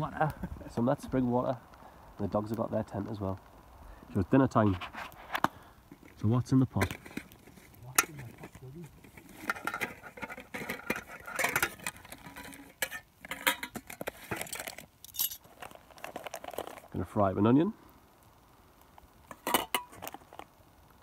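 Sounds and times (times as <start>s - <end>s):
rustling of packed items: 4.5s - 17.2s.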